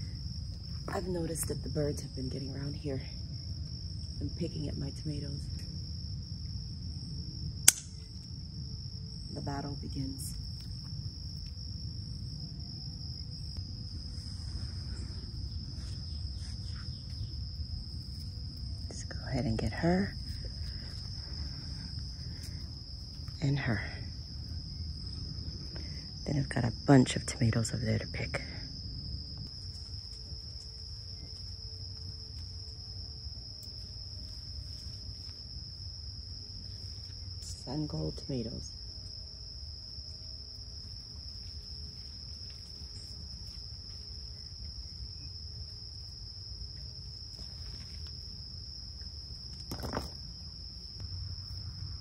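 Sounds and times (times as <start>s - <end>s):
faint ticks of vines handled: 0.0s - 26.2s, 27.5s - 52.0s
low rumble: 0.0s - 39.1s
insects trilling: 0.0s - 52.0s.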